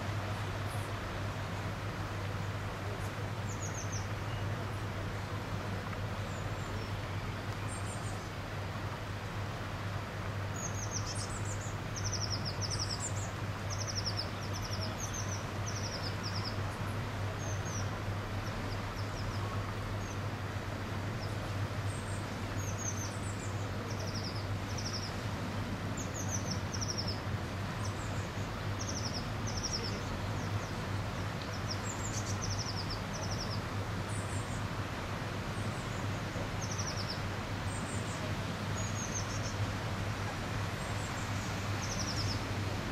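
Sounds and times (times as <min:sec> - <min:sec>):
background hiss: 0:00.0 - 0:42.9
songbird chirping: 0:10.3 - 0:25.3, 0:25.9 - 0:34.8, 0:35.4 - 0:42.9.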